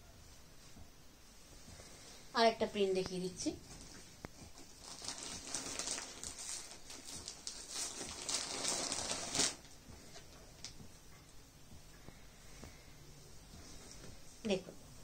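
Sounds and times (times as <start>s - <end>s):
cloth rustling: 0.3s - 11.0s.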